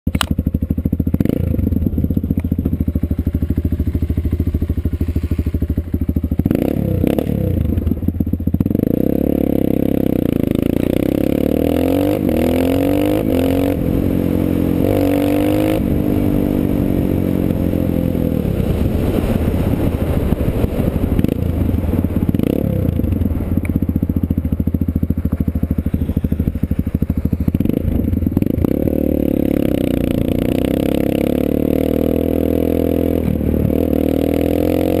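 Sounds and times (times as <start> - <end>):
dirt bike engine revving: 1.1 - 2.0, 3.4 - 7.9, 8.5 - 18.8, 25.8 - 35.0.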